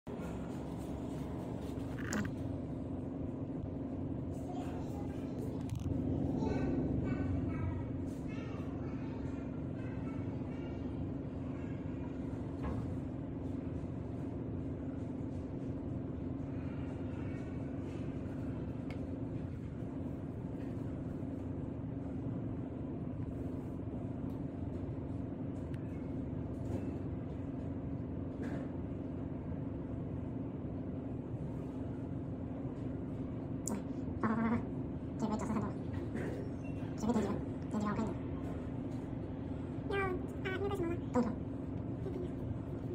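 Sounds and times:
steady droning hum: 0.0s - 42.9s
low rumble: 0.1s - 9.3s.

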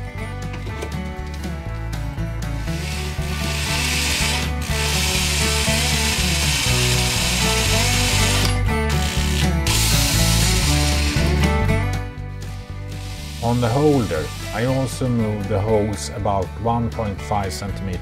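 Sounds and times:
background music: 0.0s - 18.0s
power drill boring into wood: 2.7s - 11.3s, 13.0s - 14.9s.

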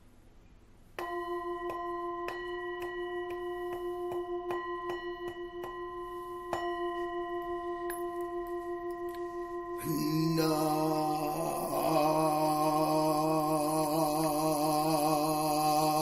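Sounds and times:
singing bowl struck: 1.0s - 16.0s.

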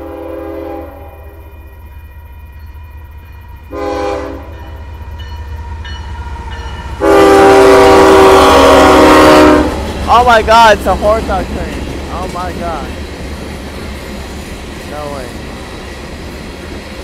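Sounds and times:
locomotive air horn blasts: 0.0s - 1.6s, 3.6s - 4.8s, 7.0s - 9.8s.

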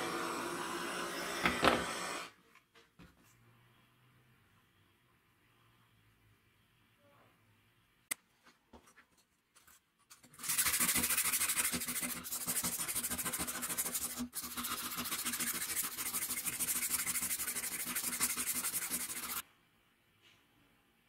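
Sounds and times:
sandpaper scratching on metal: 10.3s - 19.4s.

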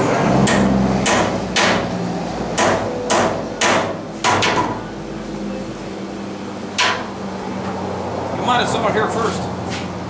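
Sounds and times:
hammer striking metal: 0.4s - 4.9s, 6.8s - 7.2s.

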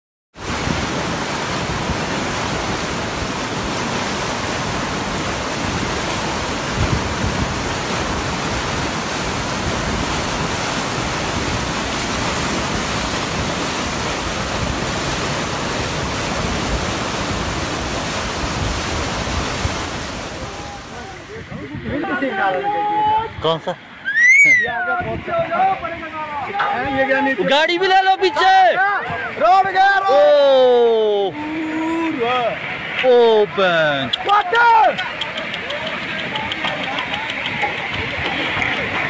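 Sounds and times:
river water rushing roar: 0.4s - 39.0s.

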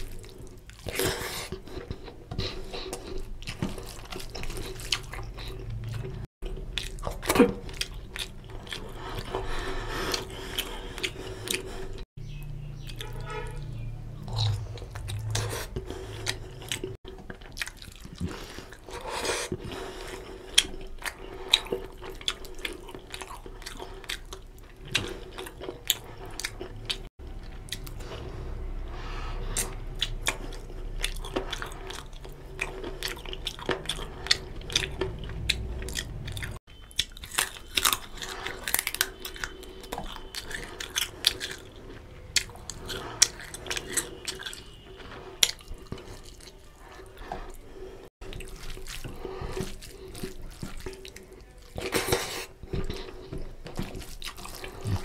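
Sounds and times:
wet chewing and lip smacks: 14.2s - 19.7s, 29.4s - 47.6s, 48.2s - 55.0s.

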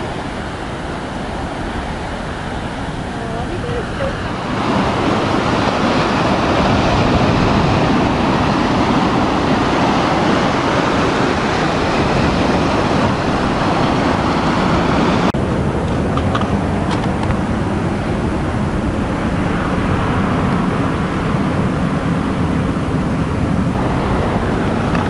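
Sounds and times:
surf breaking on beach: 0.0s - 25.0s.

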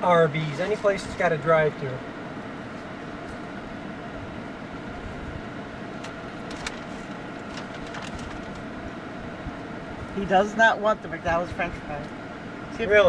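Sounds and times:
air conditioning blower: 0.0s - 13.0s.

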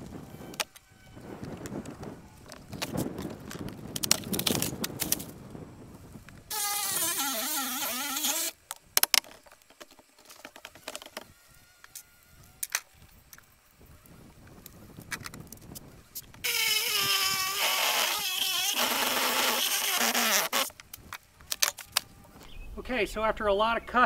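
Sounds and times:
power tool motor running: 6.5s - 8.6s, 16.4s - 20.7s.

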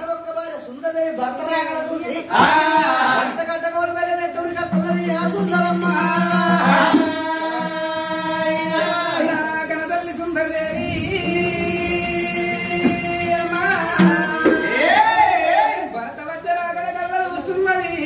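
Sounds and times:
voices singing in chorus: 2.3s - 3.4s, 4.6s - 16.2s.

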